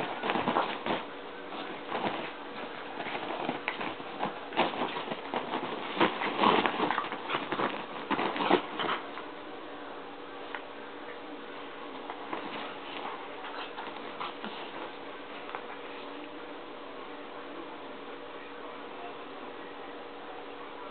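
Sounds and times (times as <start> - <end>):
fabric rustling: 0.0 - 9.1, 11.9 - 16.2
dogs scuffling: 0.0 - 9.3, 11.6 - 16.3
paws pattering: 0.0 - 9.3, 11.7 - 16.3.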